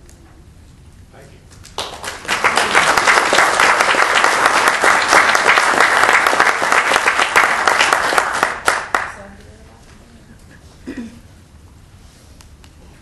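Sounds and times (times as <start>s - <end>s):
audience applauding: 1.7s - 9.2s.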